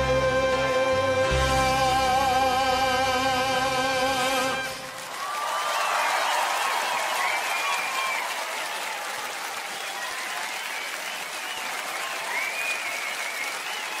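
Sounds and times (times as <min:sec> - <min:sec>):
audience applauding: 0:04.2 - 0:14.0
high calls from crowd: 0:04.6 - 0:14.0.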